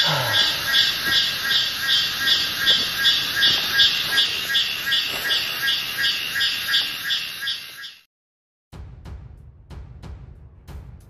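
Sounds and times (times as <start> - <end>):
animal pulsing buzz call: 0.0 - 5.0.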